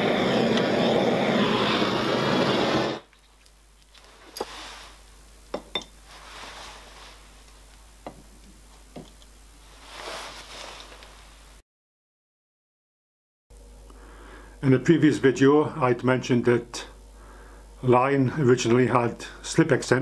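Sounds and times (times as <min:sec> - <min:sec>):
gas torch flame: 0:00.0 - 0:03.1
light metallic clinks and taps: 0:05.5 - 0:06.0, 0:09.0 - 0:09.3.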